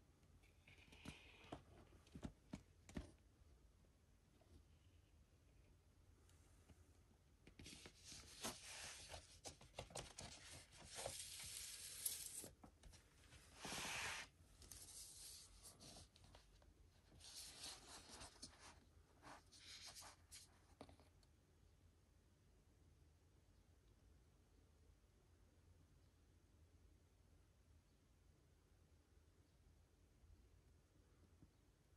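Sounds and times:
paper and cardboard rustling: 7.6s - 16.4s.

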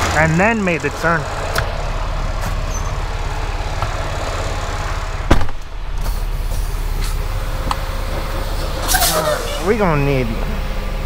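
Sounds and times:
diesel truck engine idling: 0.0s - 11.0s
loud thump: 5.2s - 6.2s.

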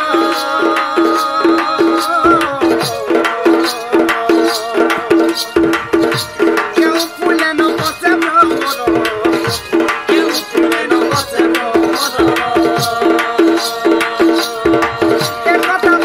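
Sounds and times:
hand drums: 0.0s - 16.0s
repeated folk melody: 0.0s - 16.0s.

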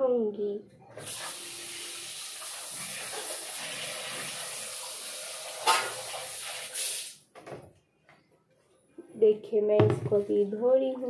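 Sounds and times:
tap water running into steel bowl: 1.0s - 7.1s.

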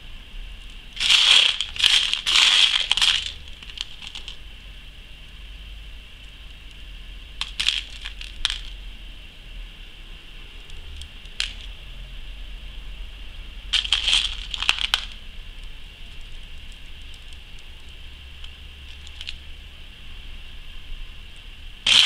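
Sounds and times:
beads rattling in plastic tray: 1.0s - 4.4s, 7.4s - 8.7s, 13.8s - 15.2s.

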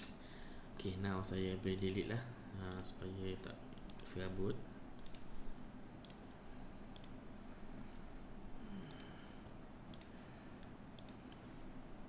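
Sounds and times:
computer mouse clicking: 2.7s - 3.0s, 3.8s - 4.2s, 5.0s - 5.3s, 6.0s - 6.3s, 6.9s - 7.2s, 8.8s - 9.1s, 9.9s - 11.4s.

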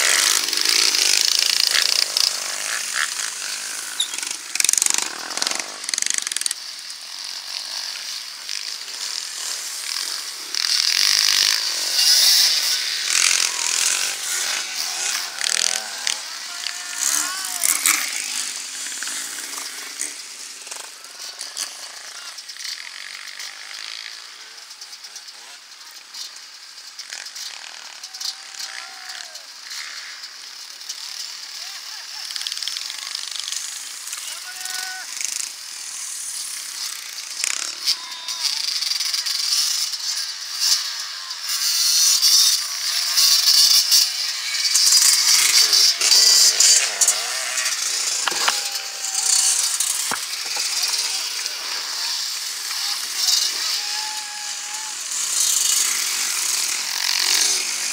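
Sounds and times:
motorcycle engines buzzing: 0.0s - 57.9s.

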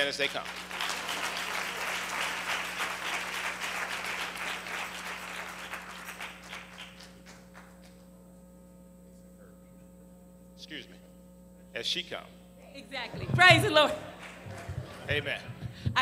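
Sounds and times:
congregation applauding: 0.0s - 8.1s, 13.2s - 15.6s.

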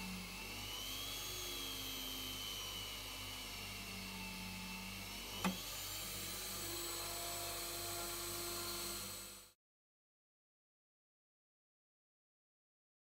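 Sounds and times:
drill press motor running: 0.0s - 9.6s.

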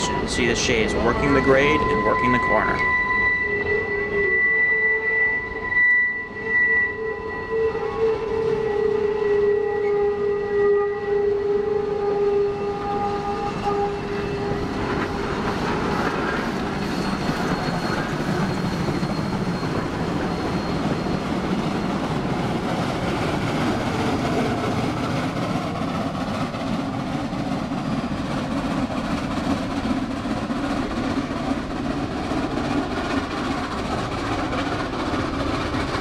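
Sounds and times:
steam whistle blast: 0.0s - 15.0s
steam locomotive exhaust chuffs: 0.0s - 36.0s.

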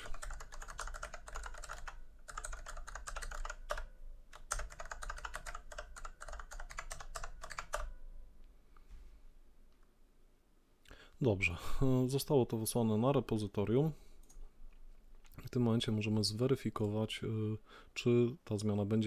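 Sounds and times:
fast typing on keyboard: 0.0s - 7.9s.

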